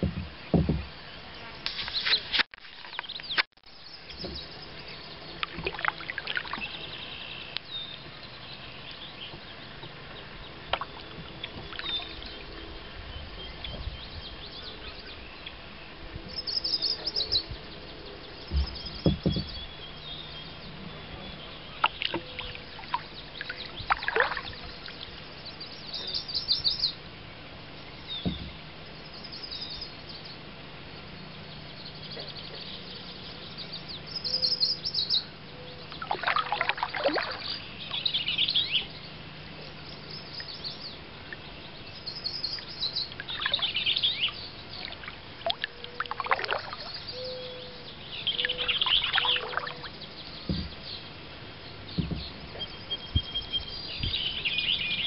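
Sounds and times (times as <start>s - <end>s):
low knock: 0.0s - 0.9s, 18.5s - 19.6s, 50.5s - 50.8s, 52.0s - 53.4s
songbirds chirping: 0.0s - 55.0s
kayak paddle splashing: 4.0s - 13.6s, 15.1s - 29.1s, 35.8s - 39.6s, 40.3s - 55.0s.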